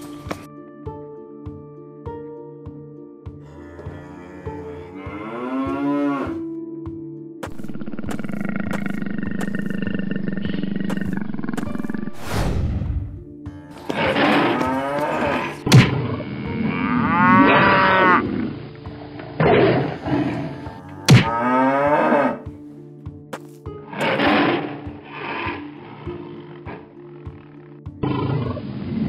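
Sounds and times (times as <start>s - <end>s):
cow mooing: 3.4s - 6.5s, 13.7s - 18.6s, 19.6s - 22.5s
tiger roaring and snarling: 7.5s - 12.0s, 13.8s - 18.5s, 19.4s - 22.4s
whoosh: 12.1s - 13.2s.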